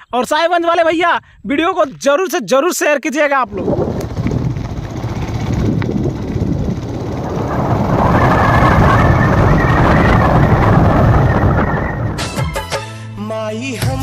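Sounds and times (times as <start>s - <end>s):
wind rushing over microphone: 3.4s - 12.4s
motorcycle engine: 3.5s - 12.3s
road noise: 3.5s - 12.3s.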